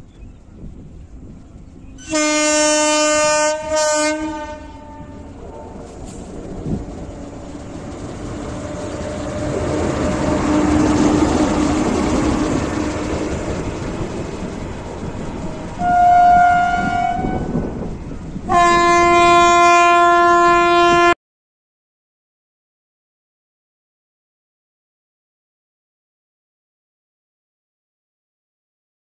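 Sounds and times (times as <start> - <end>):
train wheels on rails: 0.0 - 19.8
locomotive horn blast: 2.0 - 6.5, 8.5 - 13.4, 15.7 - 17.8, 18.5 - 21.2.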